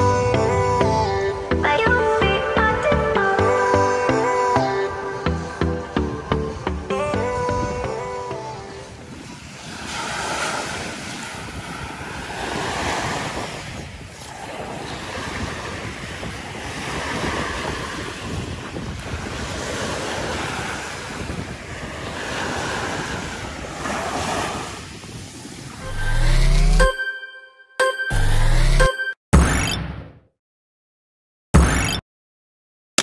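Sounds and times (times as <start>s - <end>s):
wind buffeting microphone: 5.0s - 25.8s
small waves breaking on beach: 8.1s - 25.8s.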